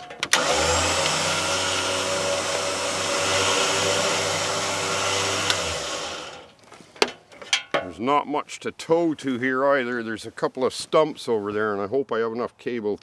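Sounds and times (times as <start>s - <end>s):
electric motor humming and whirring: 0.3s - 6.5s.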